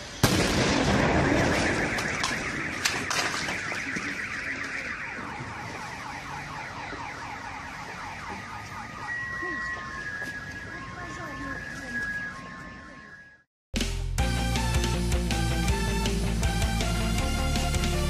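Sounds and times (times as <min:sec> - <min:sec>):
loud crash impact: 0:00.2 - 0:03.7
debris clicking: 0:01.4 - 0:04.1.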